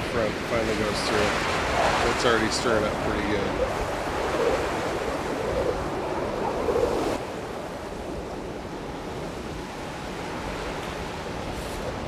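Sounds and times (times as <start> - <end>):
gusty wind buffeting microphone: 0.0 - 12.0.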